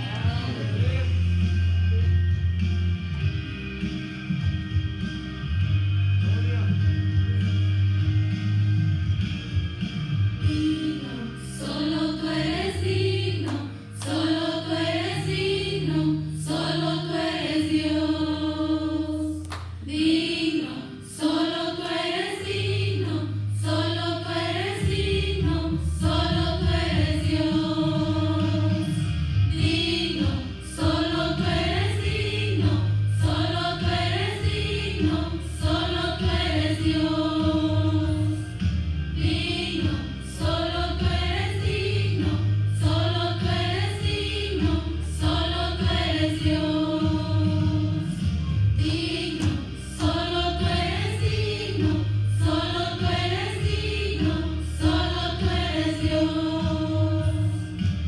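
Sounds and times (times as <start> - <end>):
sustained low bass notes: 0.0 - 19.2, 22.0 - 58.0
women's group singing: 10.5 - 38.4, 39.2 - 57.6.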